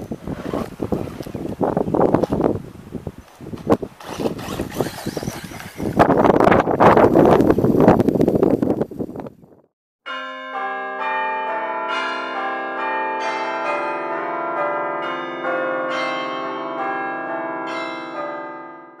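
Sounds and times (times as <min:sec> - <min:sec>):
bell-like chimes ringing: 0:10.1 - 0:19.0.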